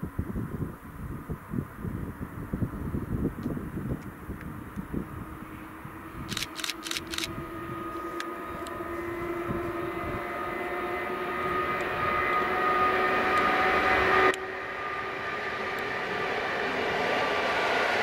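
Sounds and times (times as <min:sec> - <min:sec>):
rumble of train coaches: 0:00.0 - 0:18.0
electric locomotive whining: 0:03.7 - 0:18.0.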